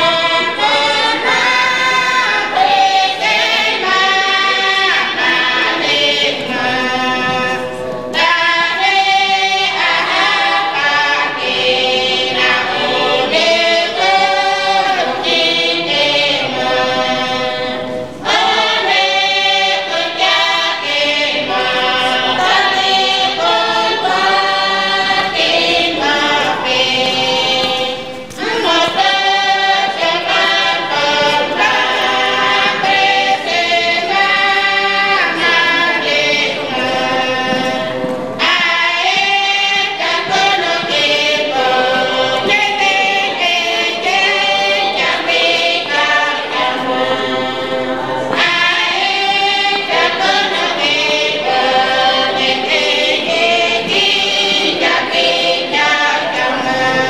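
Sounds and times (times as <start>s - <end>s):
choir singing unaccompanied: 0.0s - 57.0s.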